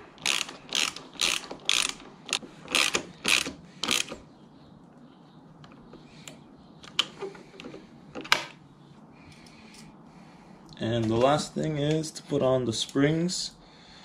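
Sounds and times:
ratchet wrench clicking: 0:00.2 - 0:04.2.

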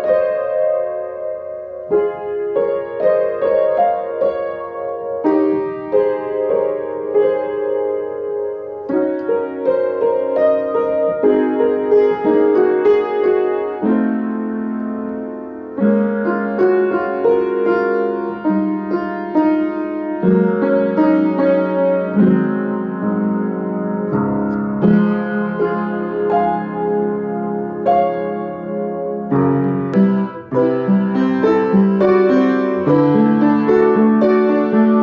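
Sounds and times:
upright piano playing: 0:00.0 - 0:35.0.

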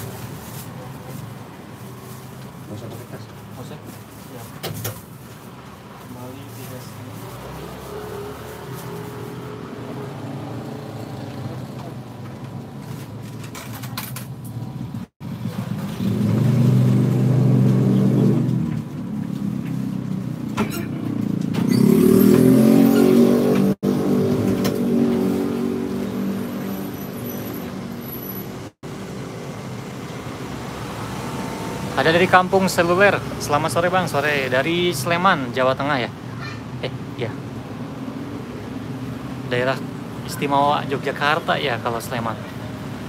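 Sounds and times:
motorbike engines pulling away: 0:06.8 - 0:12.6, 0:15.2 - 0:34.9
motorbike revving: 0:07.2 - 0:12.2, 0:14.6 - 0:34.6.

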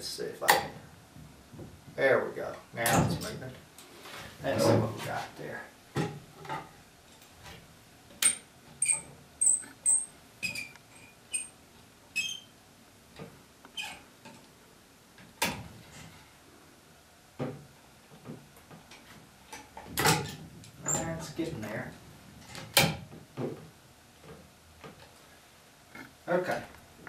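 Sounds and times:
wooden spindles squeaking: 0:08.2 - 0:11.6, 0:12.2 - 0:12.6, 0:20.8 - 0:21.4.

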